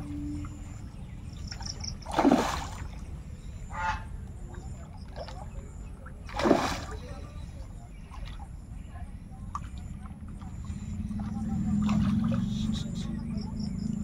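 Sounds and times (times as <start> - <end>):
steady low rumble: 0.0 - 2.1, 7.0 - 14.0
fish splashing in water: 1.5 - 3.2, 4.8 - 7.4, 9.5 - 14.0.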